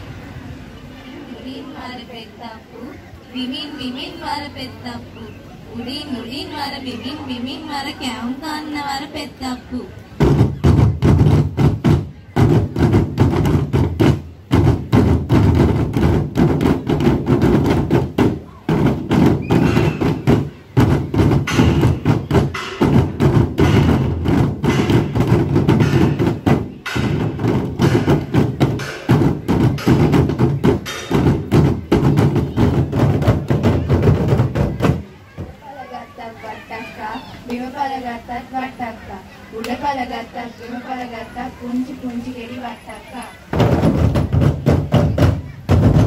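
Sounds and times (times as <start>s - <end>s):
frame drum beaten by hands: 10.2s - 35.6s, 43.5s - 46.0s.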